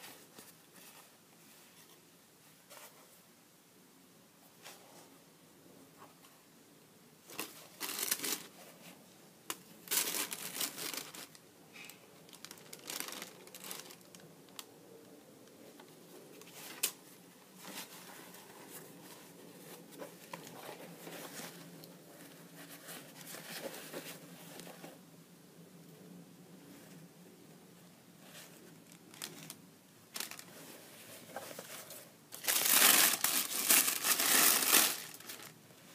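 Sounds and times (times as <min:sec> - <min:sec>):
tissue paper crinkling: 0:07.3 - 0:08.6, 0:09.8 - 0:11.4, 0:12.3 - 0:14.2, 0:28.3 - 0:35.5.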